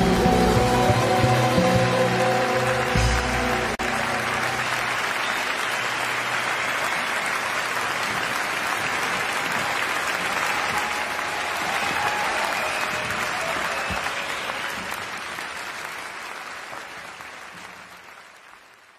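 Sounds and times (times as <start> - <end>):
held music notes: 0.0 - 6.6
audience applauding: 0.0 - 18.9.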